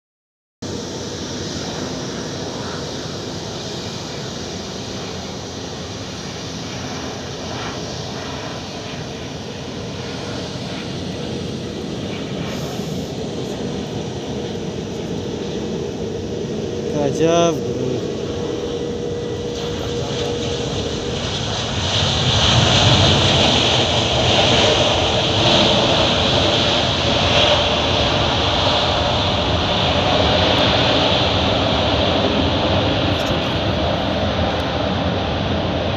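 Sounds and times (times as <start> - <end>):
distant jet engines rushing: 0.6 - 35.9.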